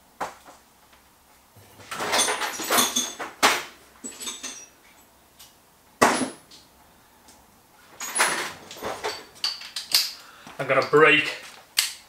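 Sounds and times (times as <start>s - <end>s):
metal hand tools clattering: 1.9s - 4.8s, 8.0s - 10.2s.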